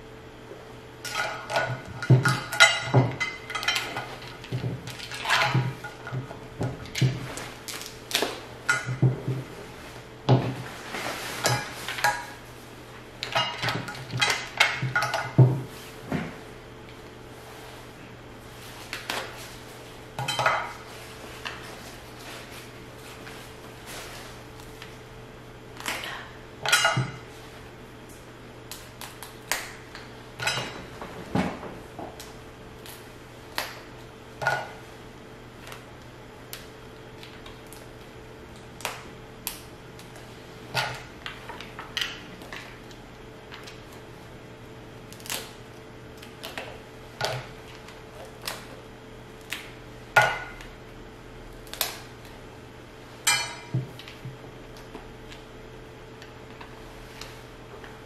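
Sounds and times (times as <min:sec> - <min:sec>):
faint steady hum: 0:00.0 - 0:58.0
dishes and utensils clinking: 0:01.0 - 0:06.0, 0:20.2 - 0:20.8.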